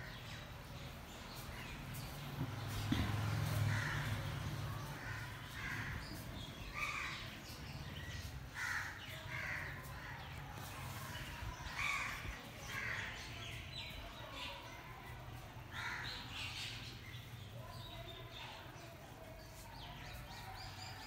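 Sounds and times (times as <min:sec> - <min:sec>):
crows cawing: 0:03.7 - 0:04.0, 0:08.6 - 0:09.8.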